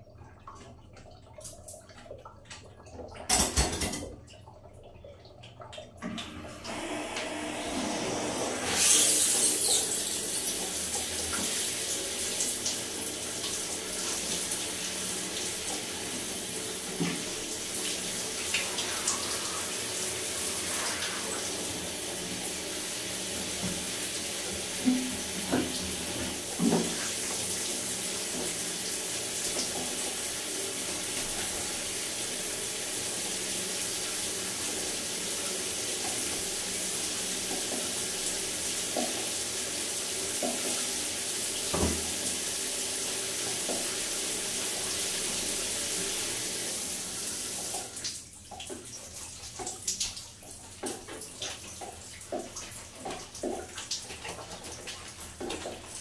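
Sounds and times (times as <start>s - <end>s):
water dripping: 0.0s - 6.7s, 23.6s - 30.2s, 47.4s - 56.0s
water running: 0.0s - 56.0s.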